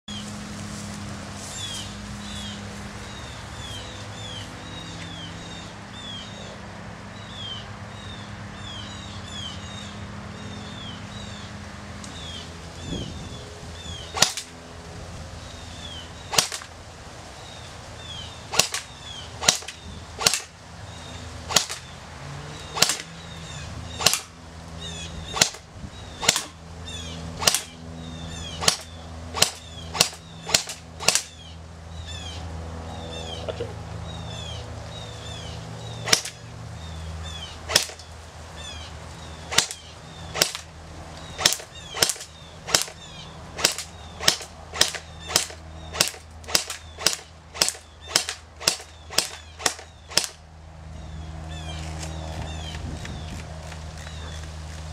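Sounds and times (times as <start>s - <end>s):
airsoft rifle shots: 14.1s - 14.5s, 16.3s - 16.7s, 18.5s - 20.6s, 21.5s - 21.9s, 22.7s - 23.2s, 24.0s - 24.4s, 25.3s - 26.6s, 27.4s - 27.8s, 28.5s - 31.4s, 36.0s - 36.4s, 37.7s - 38.0s, 39.5s - 40.7s, 41.4s - 43.0s, 43.6s - 50.4s.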